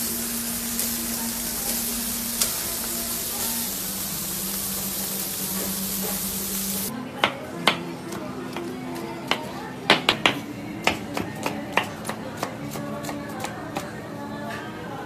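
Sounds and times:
seafood sizzling on a grill: 0.0s - 6.9s.

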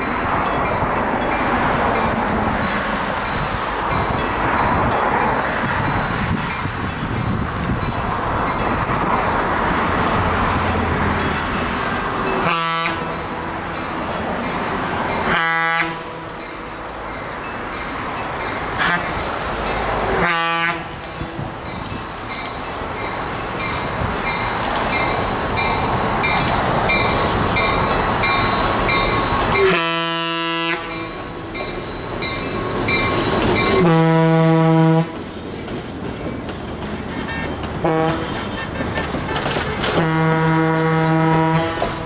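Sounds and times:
diesel locomotive rumbling: 0.0s - 42.0s
train air horn blasts: 12.4s - 13.1s, 15.2s - 16.2s, 18.8s - 19.2s, 20.2s - 20.9s, 29.6s - 31.1s, 33.8s - 35.2s, 37.3s - 38.7s, 39.7s - 42.0s.

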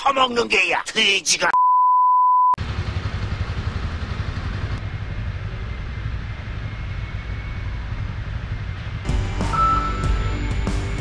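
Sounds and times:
motorcycle engines running: 2.6s - 11.0s.

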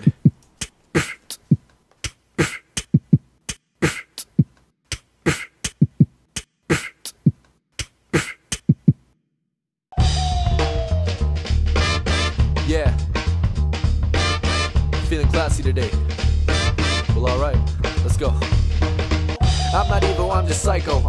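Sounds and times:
beatboxing: 0.0s - 9.0s, 19.4s - 21.0s.

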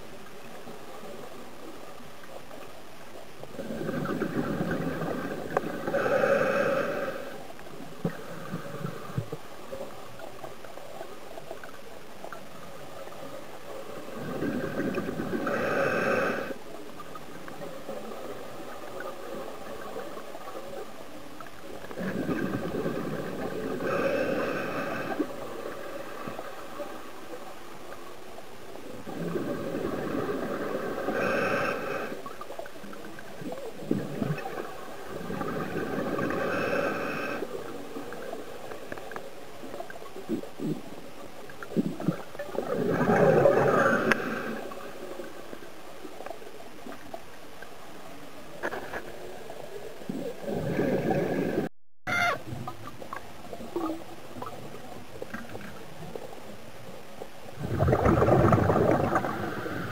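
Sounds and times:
diver breathing through regulator: 5.7s - 7.4s, 14.3s - 16.6s, 22.0s - 25.4s, 29.1s - 32.3s, 35.3s - 37.6s.

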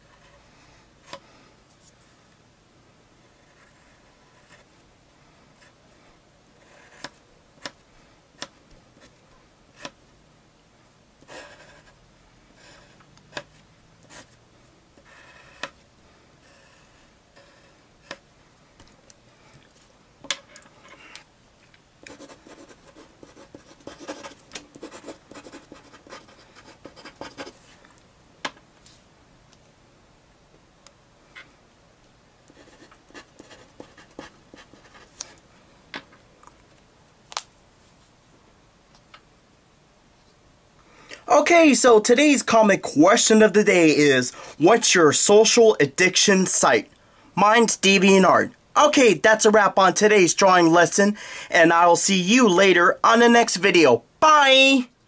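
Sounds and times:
pencil scratching on paper: 3.2s - 4.7s, 6.6s - 7.2s, 11.2s - 12.0s, 12.6s - 13.5s, 15.0s - 15.8s, 16.4s - 18.2s, 22.0s - 27.6s, 32.5s - 35.2s
pencil scribbling: 3.2s - 4.7s, 6.6s - 7.2s, 11.2s - 12.0s, 15.0s - 15.8s, 22.0s - 27.6s, 32.5s - 35.2s.

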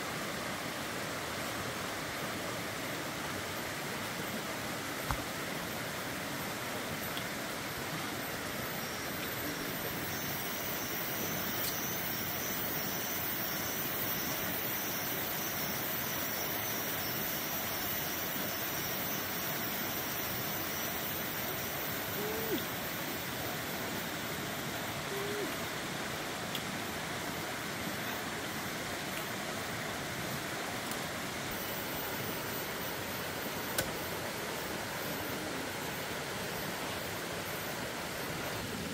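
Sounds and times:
short low calls: 22.1s - 22.8s.

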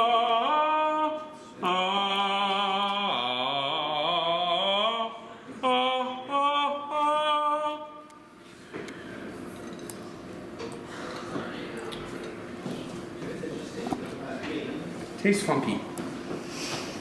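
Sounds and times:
man singing wordless tune: 0.0s - 8.1s.

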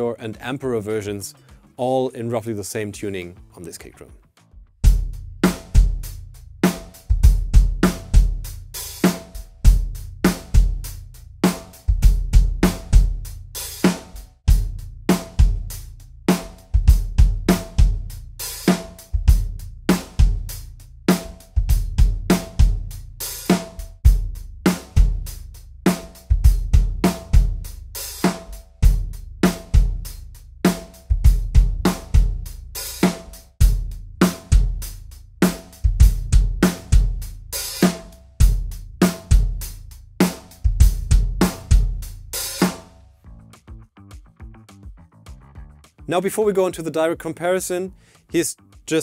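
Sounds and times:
drum kit groove: 0.0s - 49.0s
muffled punchy kick drum: 4.8s - 44.6s.

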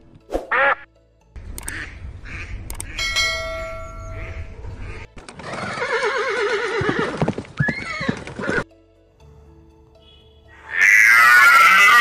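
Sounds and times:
horse neighing: 5.4s - 8.6s, 10.6s - 12.0s.

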